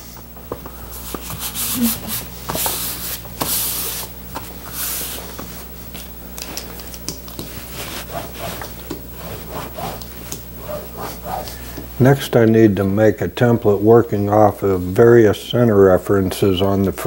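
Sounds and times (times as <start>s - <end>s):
hands swishing over vinyl: 0.9s - 6.6s, 7.4s - 11.9s.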